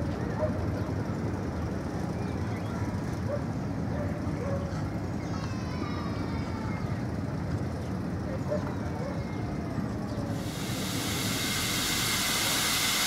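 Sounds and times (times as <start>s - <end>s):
train wheels rumbling on rails: 10.2s - 13.0s.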